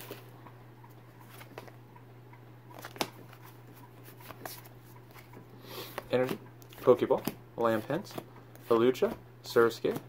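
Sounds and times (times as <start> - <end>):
low steady hum: 0.0 - 10.0
trading cards being handled: 1.1 - 1.8, 2.7 - 10.0.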